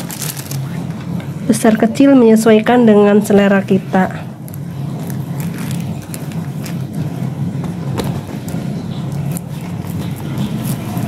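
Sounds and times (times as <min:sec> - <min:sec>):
plastic crinkling: 0:00.0 - 0:01.3, 0:04.4 - 0:11.0
steady low hum: 0:00.0 - 0:11.0.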